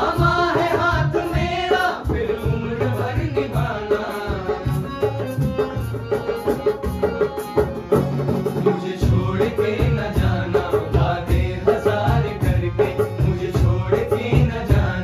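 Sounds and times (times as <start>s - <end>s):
men singing: 0.0s - 5.9s, 8.3s - 15.0s
harmonium: 0.0s - 15.0s
tabla and dholak rhythm: 0.0s - 15.0s.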